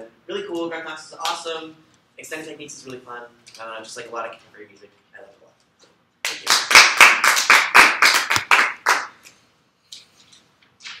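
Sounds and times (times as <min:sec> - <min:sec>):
hand clapping: 0:06.2 - 0:09.4.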